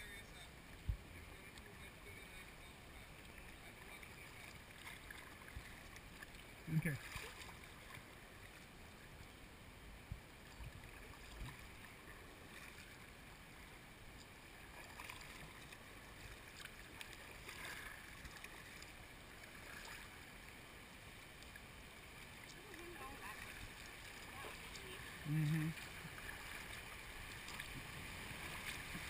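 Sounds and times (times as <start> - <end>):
kayak paddle splashing: 0.6 - 9.1, 10.2 - 29.0
river rushing: 11.6 - 29.0.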